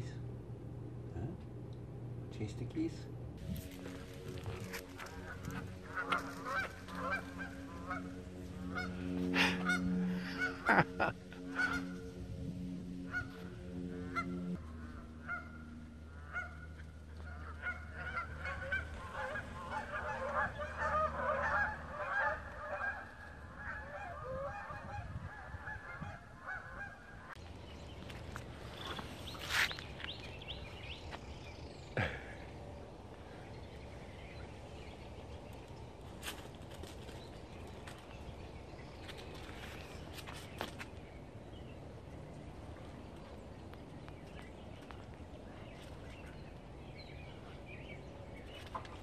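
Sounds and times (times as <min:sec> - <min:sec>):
geese honking: 0:03.4 - 0:27.4.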